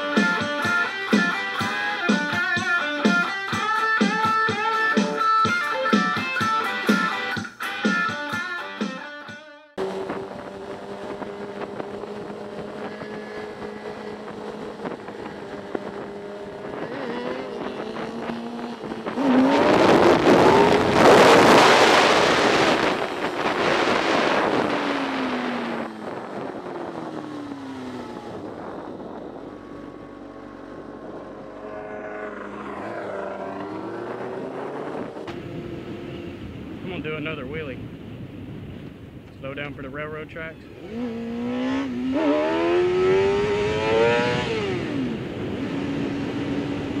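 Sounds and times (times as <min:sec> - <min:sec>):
motorcycle engine revving: 0:09.8 - 0:37.4, 0:40.6 - 0:47.0
wind rushing: 0:09.8 - 0:39.7.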